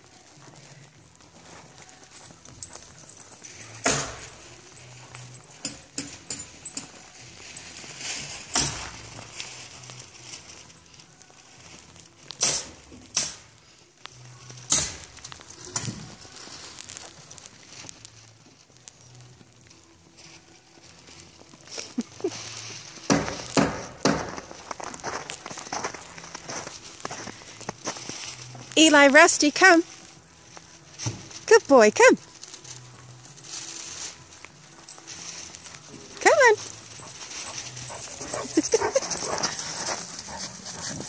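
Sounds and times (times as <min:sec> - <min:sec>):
footsteps crunching in snow: 0:24.3 - 0:31.5, 0:32.7 - 0:41.0.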